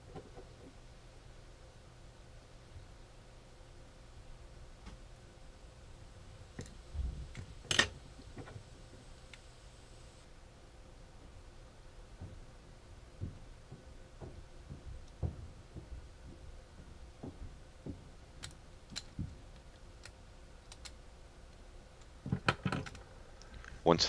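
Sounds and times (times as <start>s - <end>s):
small metal parts clicking on plastic: 18.4s - 21.0s.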